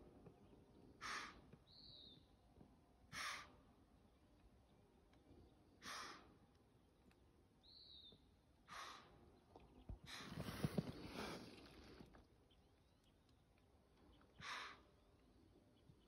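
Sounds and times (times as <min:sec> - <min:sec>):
deer snorting: 0:01.0 - 0:01.4, 0:03.2 - 0:03.5, 0:05.8 - 0:06.2, 0:08.7 - 0:09.2.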